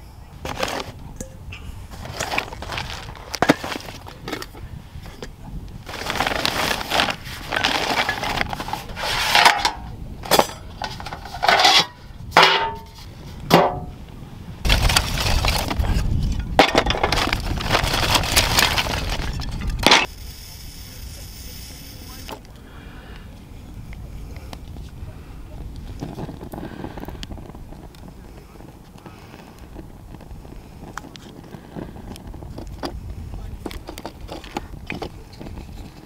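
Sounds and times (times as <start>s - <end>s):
wooden sticks clattering: 5.9s - 13.9s, 14.7s - 20.1s
metal cookware clinking: 9.5s - 12.9s.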